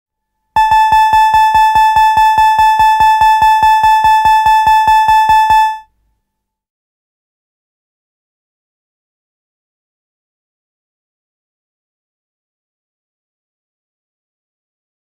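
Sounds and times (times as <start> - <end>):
electronic gong tone re-struck rapidly: 0.6 - 5.8.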